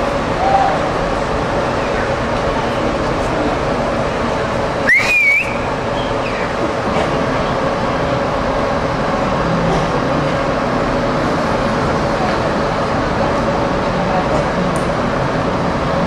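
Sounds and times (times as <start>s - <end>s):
machinery hum and rumble: 0.0s - 16.0s
short wavering whistle: 4.8s - 5.7s.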